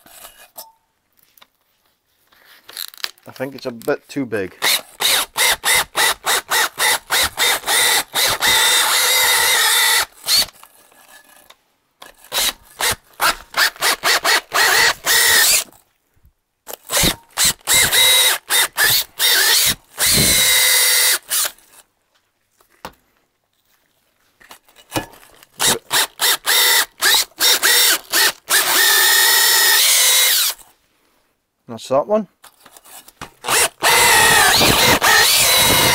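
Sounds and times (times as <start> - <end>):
drill spinning wire brush on metal: 4.6 - 11.4, 12.2 - 15.8, 16.7 - 21.8, 25.6 - 30.7, 32.8 - 35.9.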